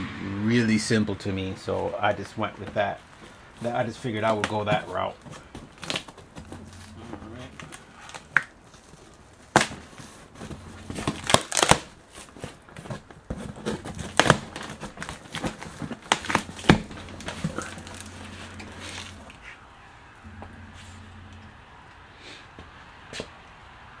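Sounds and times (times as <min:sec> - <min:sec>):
cardboard scraping: 0:05.4 - 0:19.6
packing tape ripping: 0:07.6 - 0:19.3.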